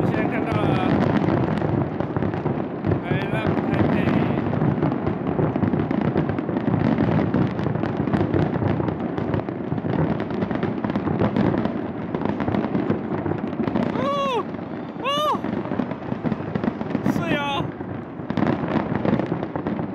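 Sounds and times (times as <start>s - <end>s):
fireworks bangs and crackling: 0.0s - 19.9s.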